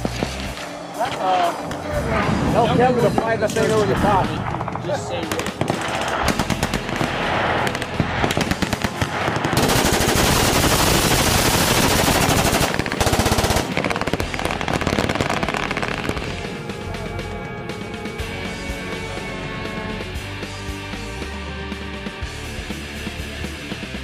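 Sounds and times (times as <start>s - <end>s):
machine guns firing bursts: 4.5s - 16.2s
rock music with guitar: 13.6s - 24.0s.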